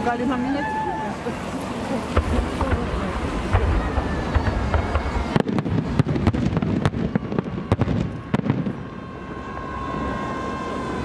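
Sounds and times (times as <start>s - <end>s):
firework bangs and crackles: 0.0s - 10.9s
thin steady tone: 7.6s - 11.0s.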